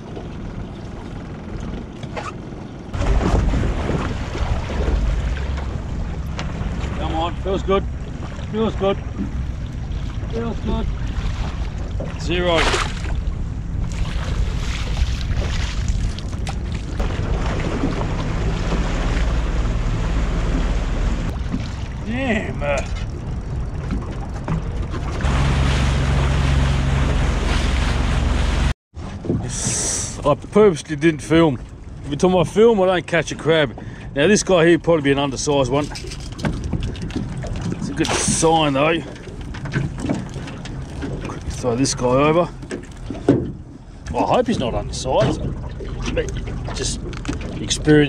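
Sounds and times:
boat engine rumble: 0.0 - 48.0
water sloshing and splashing: 0.0 - 48.0
wind buffeting microphone: 2.7 - 28.5.

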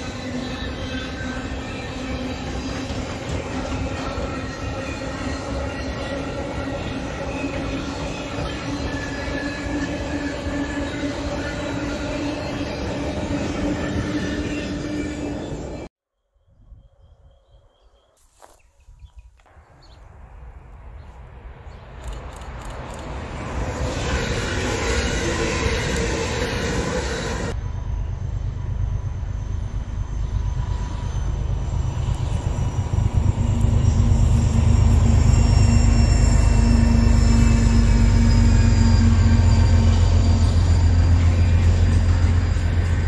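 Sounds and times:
train running on track: 0.0 - 15.9, 21.4 - 43.0
faint high whine: 27.5 - 43.0.

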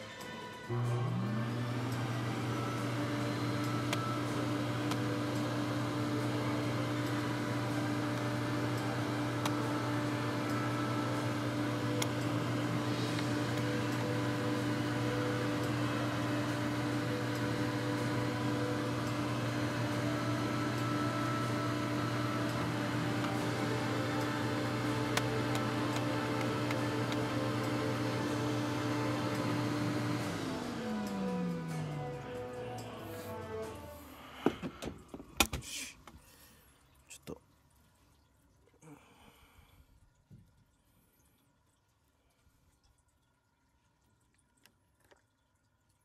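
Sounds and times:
vacuum cleaner running: 0.0 - 35.6.

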